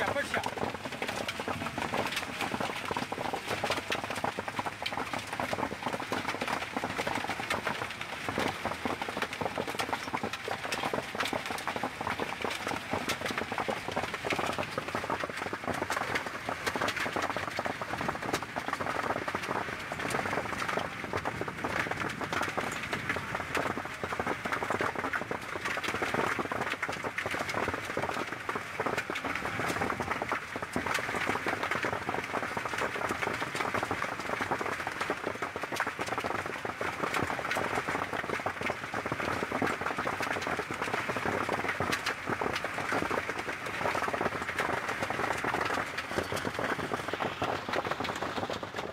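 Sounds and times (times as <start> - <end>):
hail and rain falling: 0.0 - 48.9.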